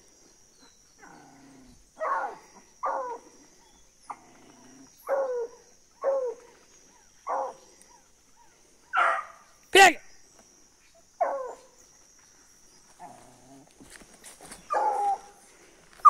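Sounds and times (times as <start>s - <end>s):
dogs barking: 2.0s - 3.4s, 5.0s - 6.5s, 7.2s - 8.1s, 8.9s - 9.5s, 11.2s - 11.8s, 14.7s - 15.4s.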